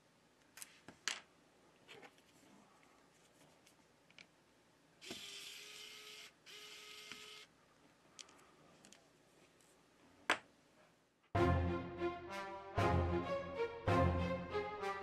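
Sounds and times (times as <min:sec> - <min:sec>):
electric screwdriver motor whirring: 0:05.0 - 0:07.5.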